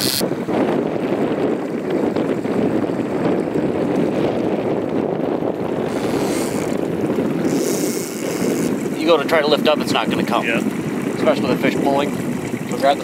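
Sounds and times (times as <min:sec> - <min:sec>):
boat engine hum: 0:00.0 - 0:13.0
choppy water washing: 0:00.0 - 0:13.0
wind rumble on microphone: 0:00.0 - 0:13.0.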